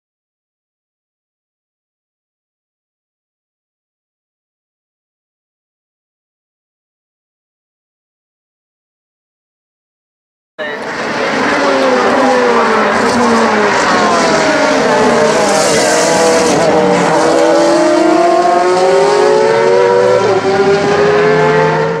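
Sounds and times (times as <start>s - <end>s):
racing car engines: 10.6s - 22.0s.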